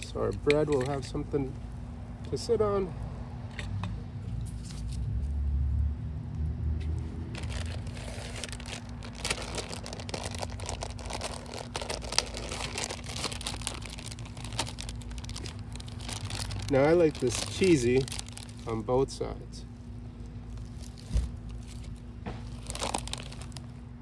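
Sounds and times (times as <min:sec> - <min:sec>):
plastic wrapping crinkling: 0:07.3 - 0:18.9, 0:20.2 - 0:23.8.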